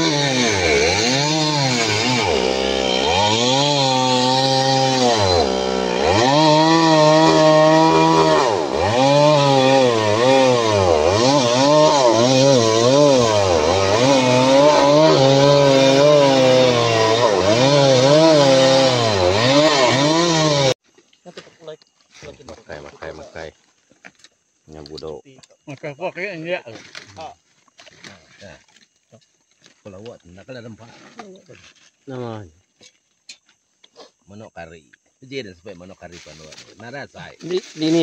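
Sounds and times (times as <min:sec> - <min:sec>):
chainsaw cutting timber: 0:00.0 - 0:20.8, 0:37.4 - 0:38.0.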